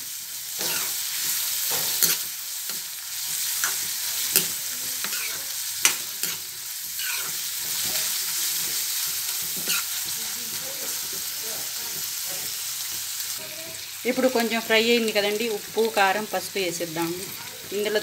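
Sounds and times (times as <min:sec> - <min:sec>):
onions sizzling in oil: 0:00.0 - 0:18.0
metal ladle scraping a pan: 0:01.7 - 0:02.3, 0:03.5 - 0:08.1, 0:08.7 - 0:10.2.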